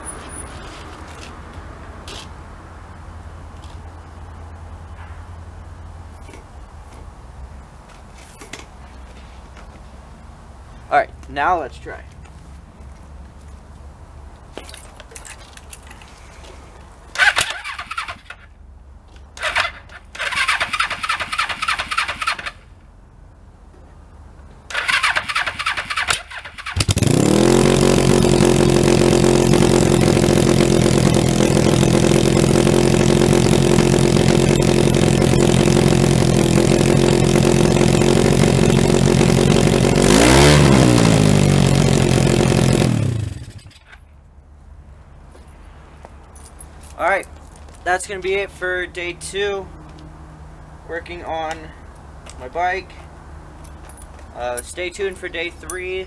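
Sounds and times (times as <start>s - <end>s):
motorcycle engine cranking: 17.1s - 18.5s, 19.4s - 22.6s, 24.7s - 44.0s
motorcycle engine idling: 26.6s - 40.0s.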